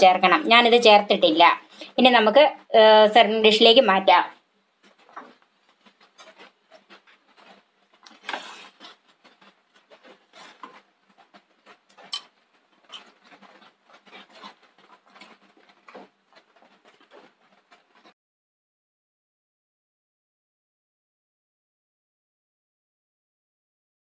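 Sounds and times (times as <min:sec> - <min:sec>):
wooden spatula scraping pan: 0:04.8 - 0:18.1.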